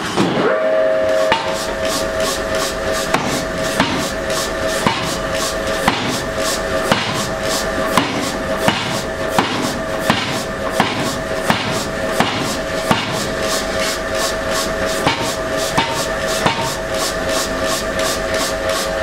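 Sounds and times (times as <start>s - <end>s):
hammer striking steel on anvil: 0.0s - 2.2s, 3.0s - 4.2s, 4.8s - 5.2s, 5.8s - 6.3s, 6.9s - 7.3s, 7.9s - 14.0s, 15.0s - 16.9s.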